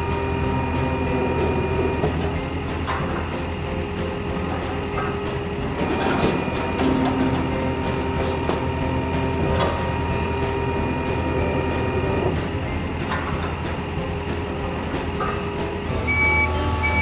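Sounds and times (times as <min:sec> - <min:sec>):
garbage truck packer whine: 0:00.0 - 0:17.0
truck engine rumble: 0:00.0 - 0:17.0.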